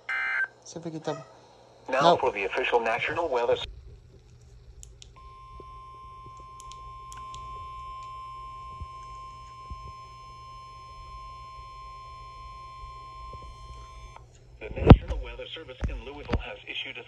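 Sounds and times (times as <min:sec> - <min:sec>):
weather radio alarm tone: 0:05.2 - 0:14.2.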